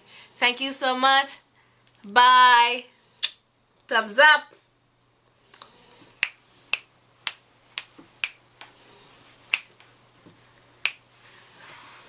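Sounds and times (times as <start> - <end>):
finger snaps: 3.2 - 3.4, 5.5 - 8.4, 9.4 - 9.9, 10.8 - 11.0.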